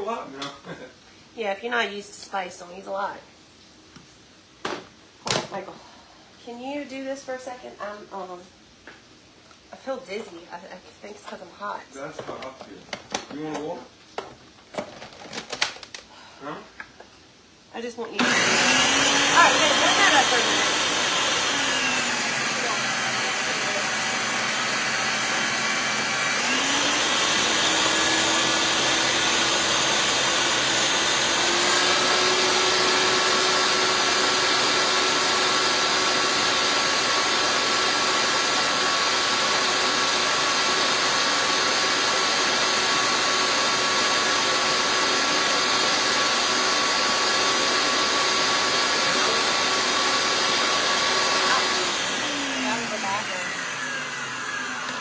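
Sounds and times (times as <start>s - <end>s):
blender motor running: 18.1s - 55.0s.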